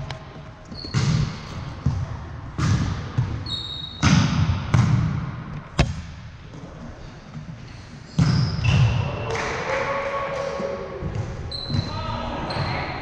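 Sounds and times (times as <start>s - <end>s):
sneaker squeaks on floor: 0.7s - 2.0s, 3.4s - 4.2s, 8.1s - 9.1s, 11.5s - 13.0s.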